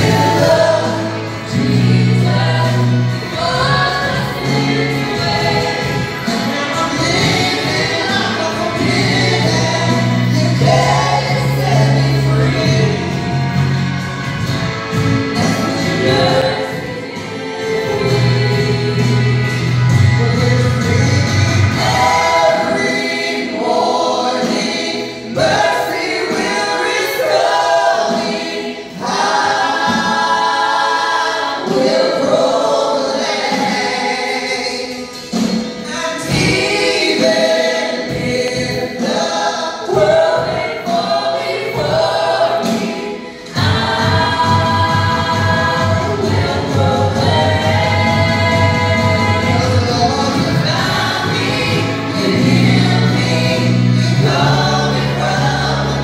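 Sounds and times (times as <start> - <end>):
bass guitar: 0.0 - 24.7, 43.4 - 56.0
singers singing melody: 0.0 - 56.0
worship band playing: 0.0 - 56.0.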